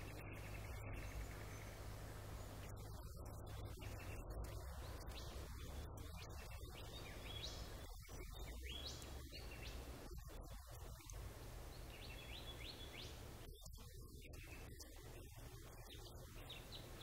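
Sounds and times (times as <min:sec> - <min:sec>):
cuckoo calling in falling trills: 0:00.0 - 0:17.0
low steady rumble: 0:00.0 - 0:17.0.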